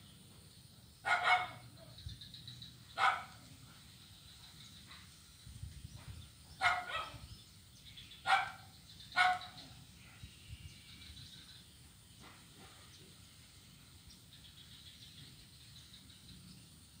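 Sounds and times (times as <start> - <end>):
dog barking: 1.0 - 2.0, 3.0 - 3.4, 6.6 - 7.3, 8.2 - 9.6.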